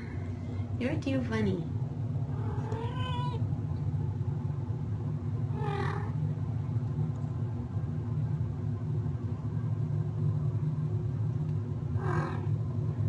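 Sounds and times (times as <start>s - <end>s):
steady low hum: 0.0s - 13.0s
kitten meowing: 2.4s - 3.4s.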